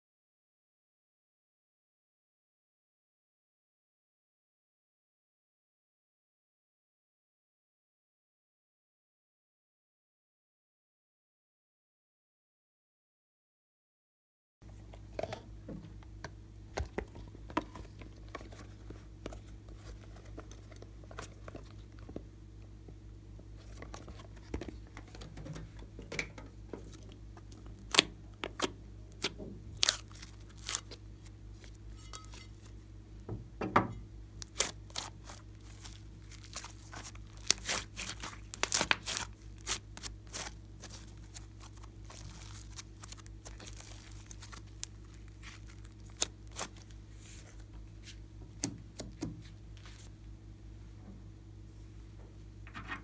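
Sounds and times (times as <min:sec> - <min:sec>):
slime squelching with sticky pops: 0:26.8 - 0:31.0, 0:34.4 - 0:47.7.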